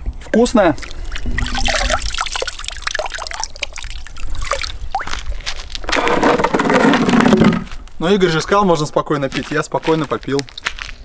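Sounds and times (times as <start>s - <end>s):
water trickling and dripping: 0.4s - 5.8s
small water splashes: 0.6s - 5.8s.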